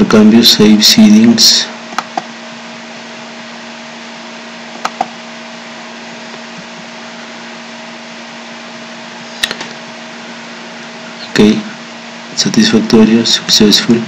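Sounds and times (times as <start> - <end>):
microphone hiss with low hum: 0.0 - 14.0
computer mouse clicking: 4.8 - 5.1.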